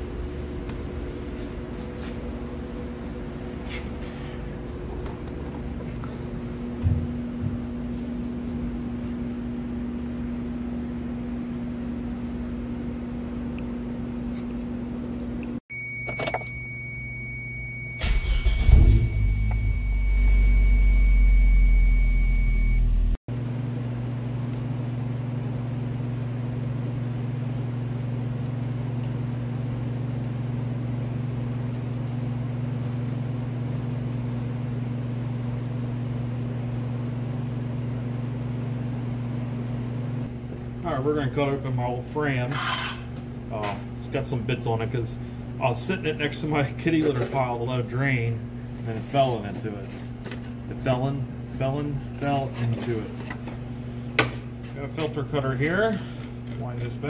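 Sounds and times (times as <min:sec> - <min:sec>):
electrical hum: 0:00.0 - 0:57.0
high warning tone: 0:15.7 - 0:23.2
car engine cranking and idling: 0:18.0 - 0:19.8.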